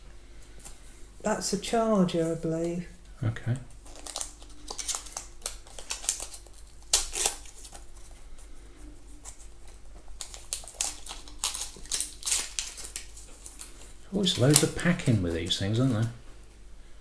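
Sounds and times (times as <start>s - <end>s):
plastic wrapping crinkling: 3.8s - 16.2s.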